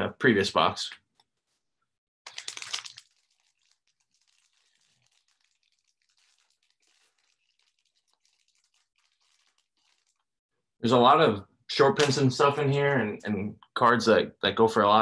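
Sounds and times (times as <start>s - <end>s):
foil wrapper crinkling and tearing: 2.3s - 10.2s.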